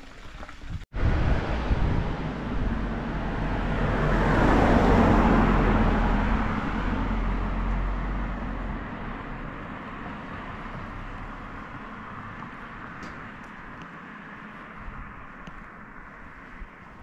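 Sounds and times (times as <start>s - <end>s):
car driving past: 1.0s - 13.4s.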